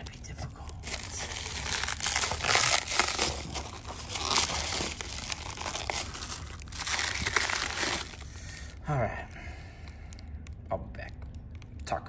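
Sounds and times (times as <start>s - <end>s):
plastic wrap crinkling and tearing: 0.0s - 8.8s.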